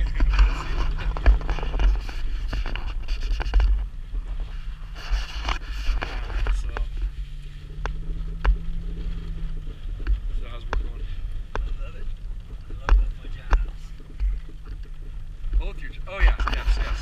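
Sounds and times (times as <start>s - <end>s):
vehicle knocks and rattles: 0.0s - 4.0s
vehicle engine hum: 0.0s - 17.0s.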